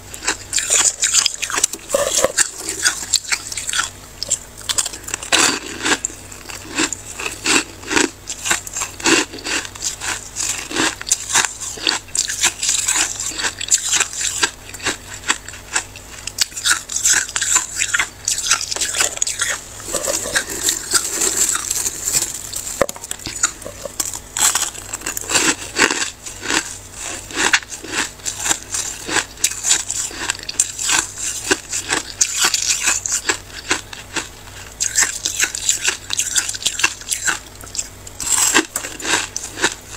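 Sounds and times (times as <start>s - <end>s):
chewing icy frost crunches: 0.1s - 39.9s.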